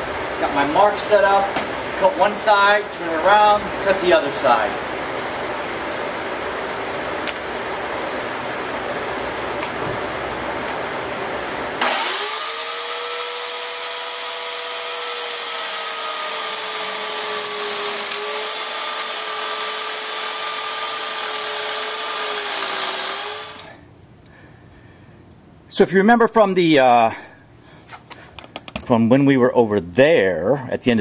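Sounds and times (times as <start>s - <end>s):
fan humming: 0.0s - 30.1s
electric chainsaw cutting wood: 11.8s - 23.8s.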